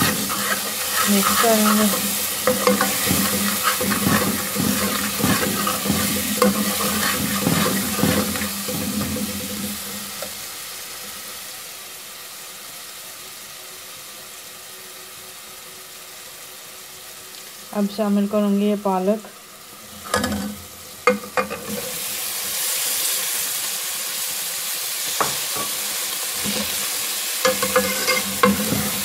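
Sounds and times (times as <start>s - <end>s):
spoon scraping metal pot: 0.0s - 10.2s, 27.5s - 29.0s
hot oil sizzling: 0.0s - 29.0s.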